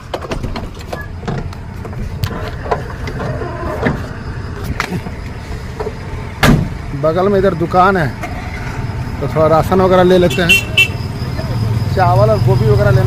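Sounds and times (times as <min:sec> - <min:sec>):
heavy vehicle engine rumbling: 0:00.0 - 0:13.0.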